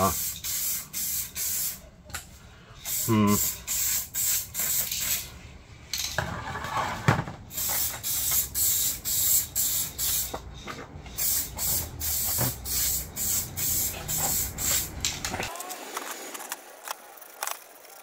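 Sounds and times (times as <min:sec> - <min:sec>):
spray paint can hissing: 0:00.0 - 0:01.9, 0:02.8 - 0:05.3, 0:07.5 - 0:10.4, 0:11.1 - 0:18.0.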